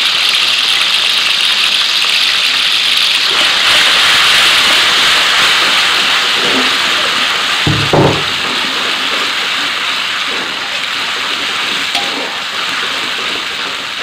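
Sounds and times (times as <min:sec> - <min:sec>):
dull knock: 0:07.7 - 0:08.4.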